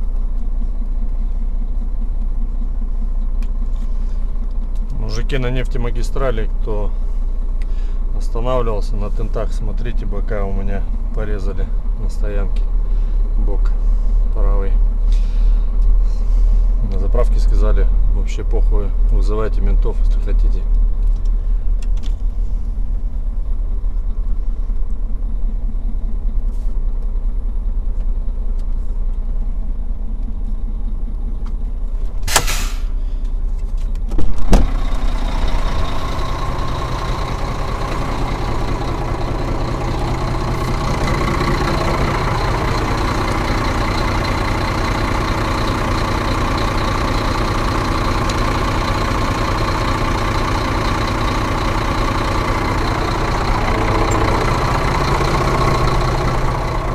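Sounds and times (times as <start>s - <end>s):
diesel truck engine idling: 0.0s - 56.9s
cab door clunk: 34.0s - 34.8s.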